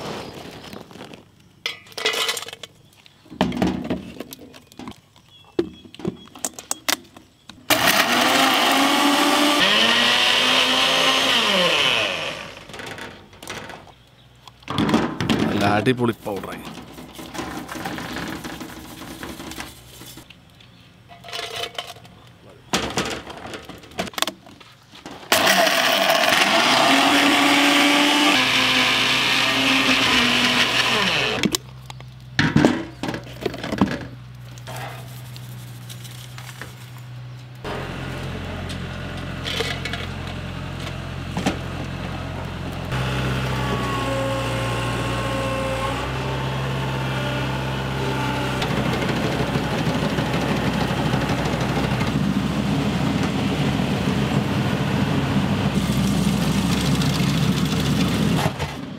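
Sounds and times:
mixer grinder running: 0:07.7 - 0:12.8, 0:25.3 - 0:31.5, 0:37.7 - 0:58.6
low engine hum: 0:34.1 - 0:58.6.

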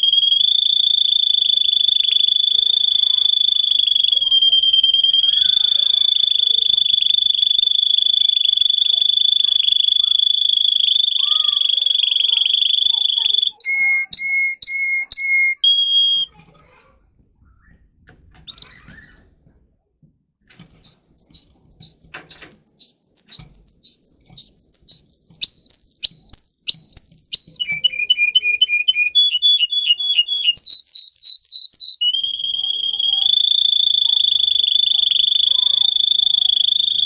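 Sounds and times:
canary singing: 0:00.0 - 0:16.4, 0:18.4 - 0:19.4, 0:20.4 - 0:37.0.

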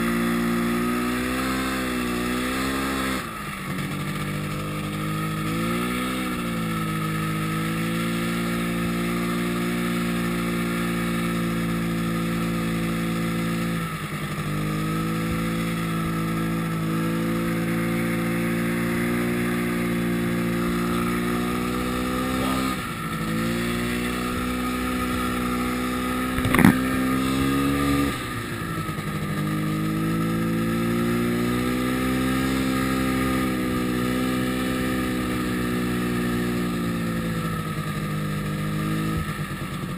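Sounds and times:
snowmobile engine running: 0:00.0 - 0:39.9
sharp knock: 0:26.4 - 0:26.8.

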